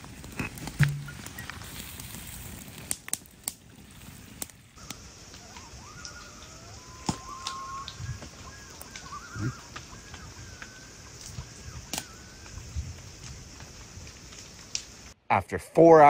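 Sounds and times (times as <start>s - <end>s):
campfire crackling and popping: 0.0s - 15.2s
loons calling: 4.8s - 13.2s.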